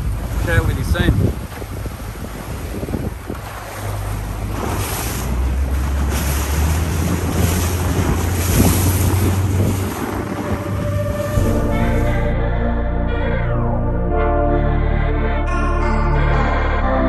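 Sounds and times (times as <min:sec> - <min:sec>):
wind buffeting microphone: 0:00.0 - 0:12.1
water rushing along hull: 0:00.0 - 0:14.4
motorboat engine drone: 0:00.0 - 0:17.0.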